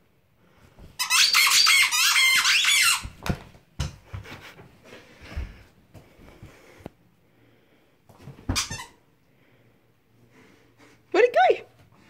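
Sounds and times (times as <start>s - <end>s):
squeaky toy squeaking: 1.0s - 3.1s.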